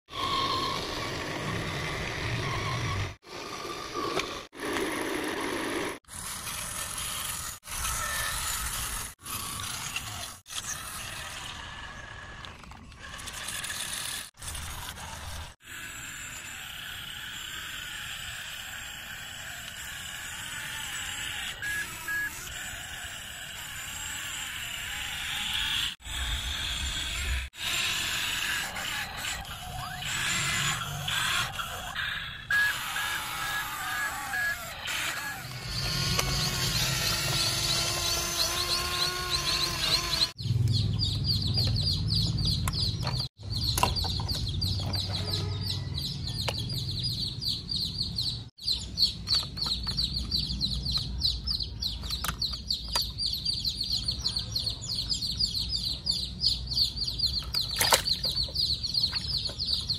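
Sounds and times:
toy truck motor whirring: 0:00.1 - 0:40.4.

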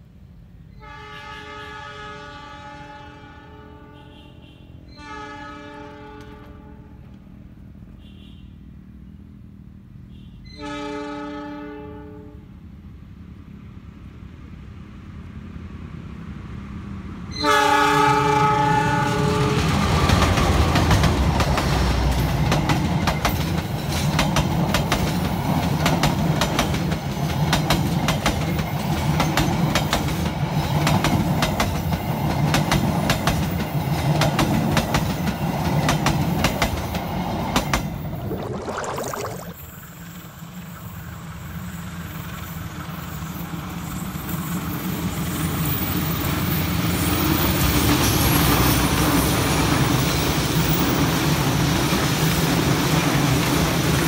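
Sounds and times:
locomotive air horn blasts: 0:00.8 - 0:07.0, 0:10.1 - 0:12.4, 0:17.4 - 0:19.6
train wheels clattering on rails: 0:19.5 - 0:37.9.

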